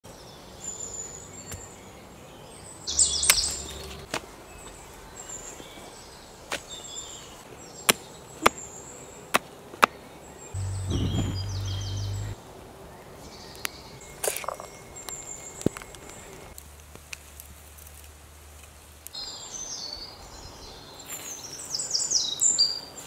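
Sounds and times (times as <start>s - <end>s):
faint bird chirps: 10.4s - 12.4s.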